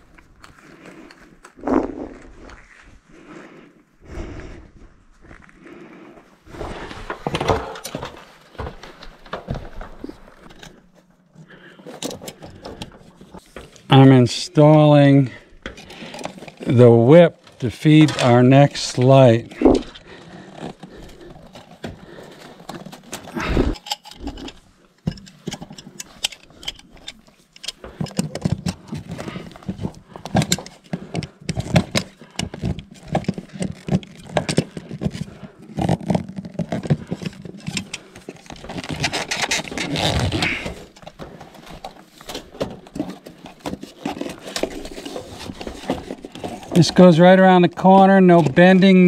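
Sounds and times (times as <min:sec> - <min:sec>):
plastic tubing clicks and rustles: 0:06.5 - 0:14.0, 0:17.4 - 0:49.0.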